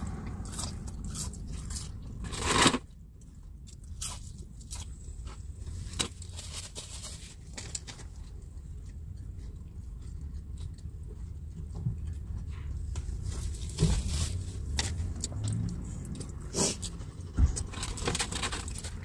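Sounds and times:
vehicle interior rumble: 0:00.0 - 0:03.6, 0:07.8 - 0:19.0
crunching and rustling while eating: 0:00.0 - 0:19.0.

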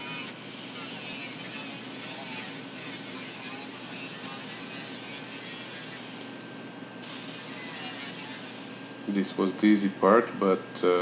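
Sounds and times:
angle grinder cutting steel: 0:00.0 - 0:06.3, 0:07.2 - 0:08.8.

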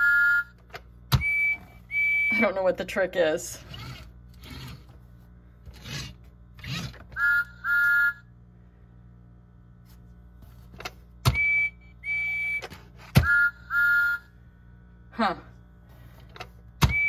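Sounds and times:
toy train electronic whistle toots: 0:00.0 - 0:00.6, 0:01.2 - 0:02.3, 0:06.6 - 0:08.3, 0:11.3 - 0:14.3.

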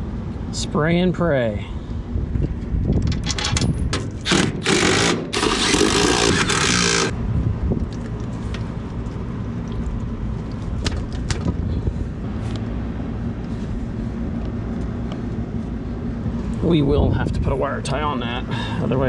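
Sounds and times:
low machine rumble: 0:00.0 - 0:19.0
faint hum: 0:04.1 - 0:19.0.

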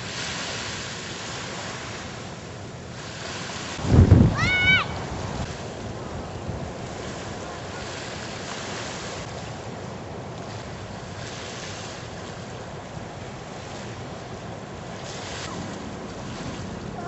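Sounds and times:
ocean surf breaking: 0:00.0 - 0:17.0
wind on microphone: 0:03.0 - 0:09.4.

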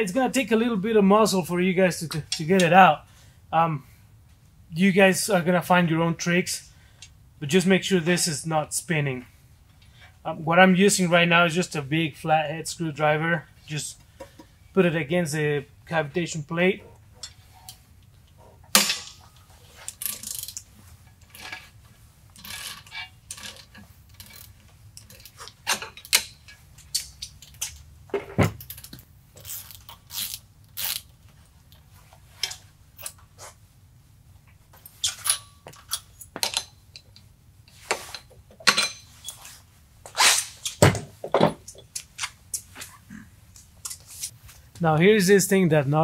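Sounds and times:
tools knocked and handled: 0:40.8 - 0:42.0.

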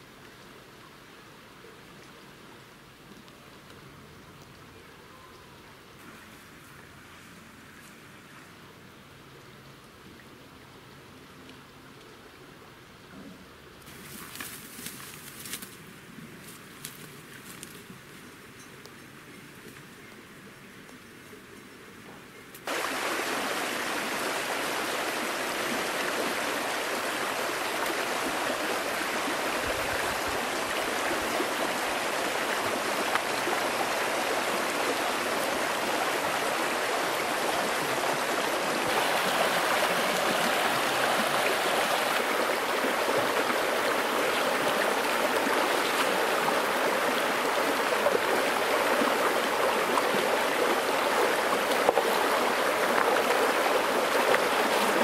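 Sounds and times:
river rushing over rocks: 0:22.7 - 0:55.0.

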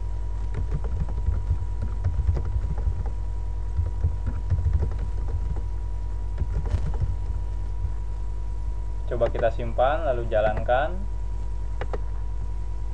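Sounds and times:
low electrical hum: 0:00.0 - 0:12.9
keyboard key clicks: 0:11.8 - 0:12.0.

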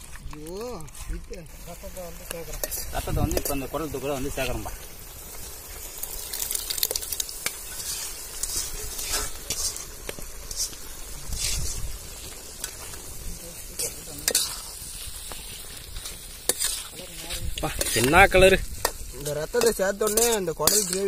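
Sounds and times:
gravy sizzling in a wok: 0:00.0 - 0:21.0
ladle scraping and clinking on pan: 0:16.0 - 0:17.0, 0:19.6 - 0:21.0.

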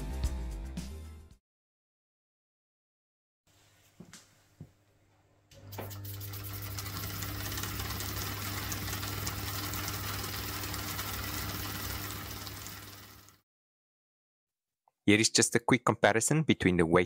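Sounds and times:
small steam engine running: 0:05.9 - 0:13.4.

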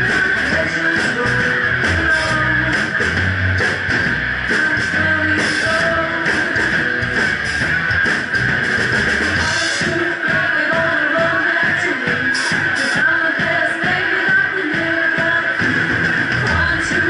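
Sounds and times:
electric guitar strumming: 0:00.0 - 0:10.4
drum kit beat: 0:00.0 - 0:17.0.

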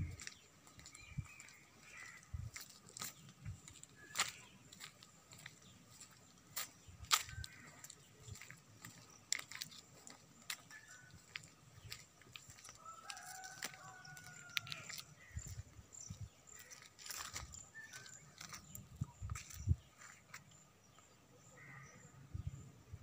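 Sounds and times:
footsteps through dry undergrowth: 0:00.0 - 0:20.5
rooster crowing: 0:12.8 - 0:15.0.

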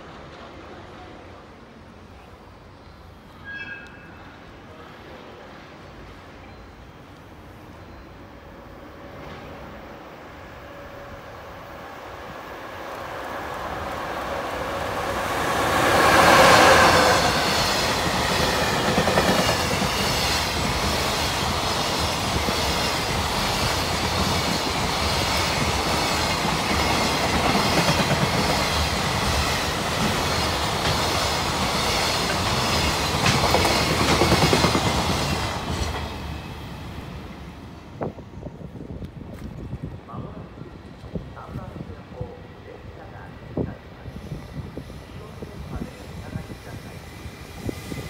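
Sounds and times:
electric locomotive passing: 0:00.0 - 0:48.0
train wheels clickety-clack: 0:15.4 - 0:36.5.

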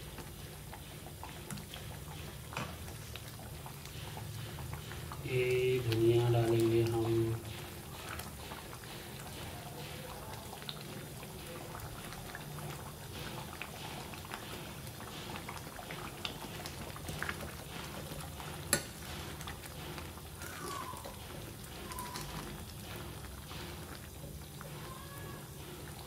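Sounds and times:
curry bubbling in a pot: 0:00.0 - 0:26.0.

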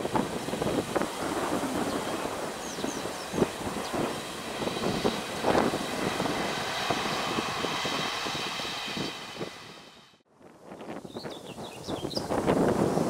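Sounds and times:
faint high whine: 0:00.0 - 0:10.2
train passing: 0:00.0 - 0:10.2.

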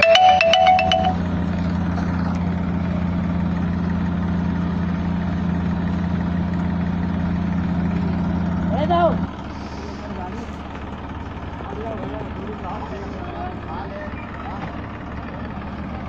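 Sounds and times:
short chiming jingle: 0:00.0 - 0:01.2
tractor diesel engine running: 0:00.0 - 0:16.0.

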